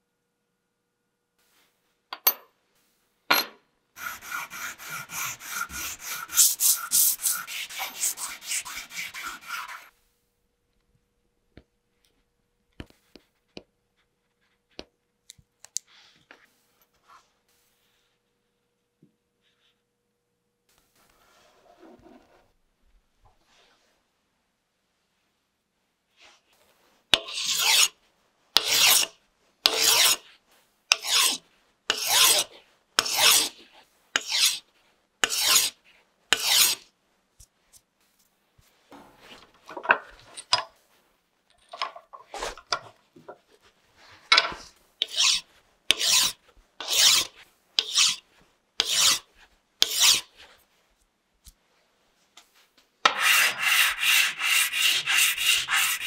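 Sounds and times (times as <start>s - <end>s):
hand file rasping strokes: 4.0s - 9.9s, 27.1s - 28.0s, 28.6s - 30.3s, 30.9s - 36.8s, 45.0s - 48.2s, 48.8s - 50.5s, 53.1s - 56.0s
scrubbing on sandpaper: 4.0s - 9.9s, 53.2s - 56.0s.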